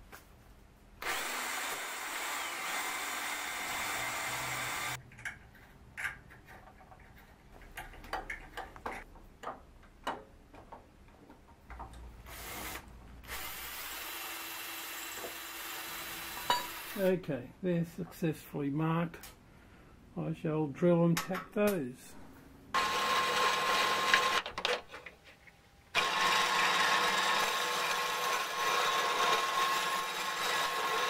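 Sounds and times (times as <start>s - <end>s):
cordless drill drilling metal: 1.0s - 5.0s, 12.3s - 17.0s, 22.8s - 24.4s, 26.0s - 31.0s
clicks and knocks of handling: 5.0s - 12.1s.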